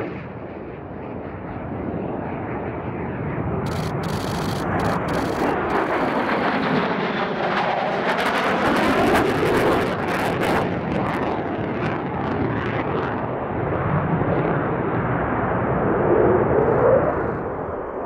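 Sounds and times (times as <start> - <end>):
fighter jet passing: 0.0 - 18.0.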